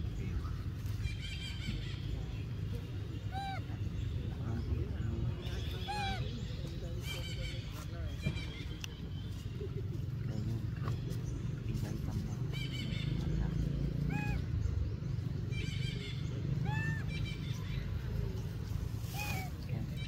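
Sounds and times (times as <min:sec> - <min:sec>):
monkey chittering: 0:03.2 - 0:03.8, 0:05.5 - 0:06.3, 0:12.1 - 0:14.9, 0:15.7 - 0:17.7, 0:19.2 - 0:19.6
monkey high-pitched cries: 0:03.2 - 0:03.8, 0:05.7 - 0:06.4, 0:14.0 - 0:14.6, 0:15.6 - 0:17.7, 0:19.1 - 0:19.6.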